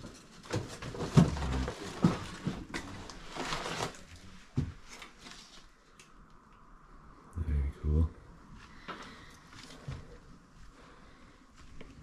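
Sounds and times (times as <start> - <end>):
rustling: 0.0 - 6.0.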